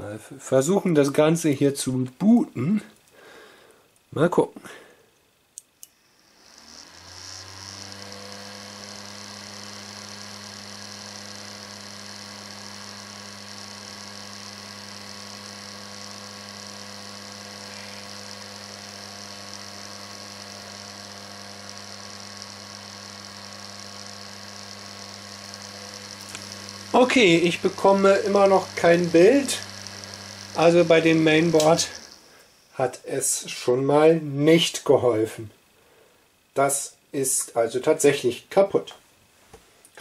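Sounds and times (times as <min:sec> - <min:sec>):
computer fans spinning up: 0:05.9 - 0:33.4.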